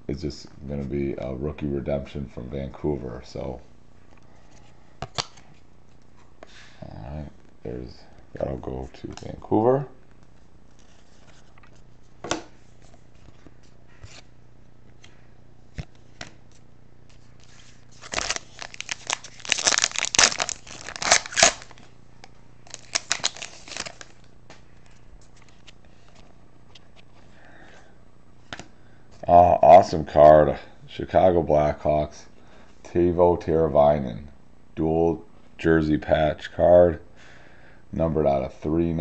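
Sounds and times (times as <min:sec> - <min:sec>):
foil crinkling and ripping: 0:17.4 - 0:21.8, 0:22.6 - 0:24.3.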